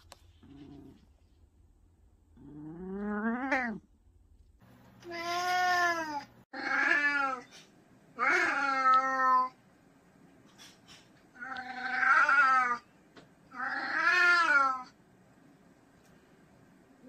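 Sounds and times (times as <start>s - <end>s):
cat meowing: 8.2s - 9.6s, 13.5s - 14.9s.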